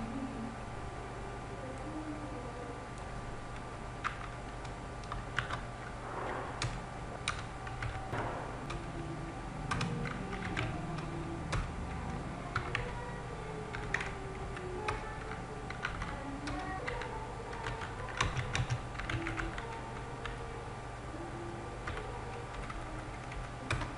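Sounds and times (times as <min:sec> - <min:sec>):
steady low hum: 0:00.0 - 0:23.9
typing on computer keyboard: 0:04.0 - 0:05.6, 0:06.6 - 0:08.0, 0:09.7 - 0:11.7, 0:12.5 - 0:13.0, 0:13.7 - 0:20.4, 0:21.8 - 0:23.9.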